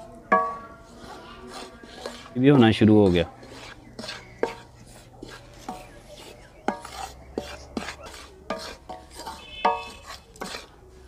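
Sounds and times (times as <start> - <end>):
spoon knocking metal pan: 0.0 - 0.9, 6.6 - 10.6
wooden spoon scraping flour in pan: 0.0 - 11.0.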